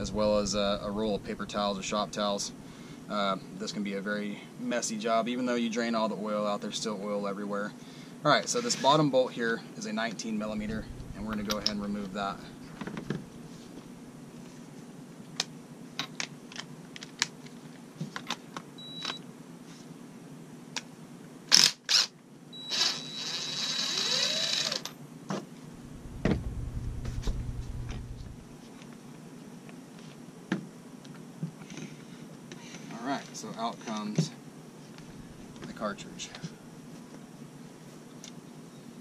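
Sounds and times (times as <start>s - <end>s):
impact driver motor whining: 22.8s - 24.9s.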